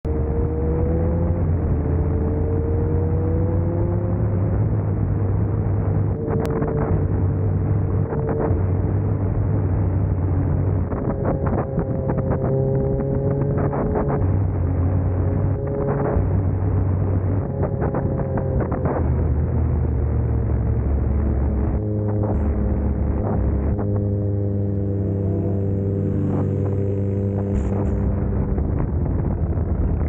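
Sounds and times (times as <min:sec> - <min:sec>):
motorcycle engine running: 0:00.0 - 0:30.0
exhaust crackles: 0:08.4 - 0:30.0.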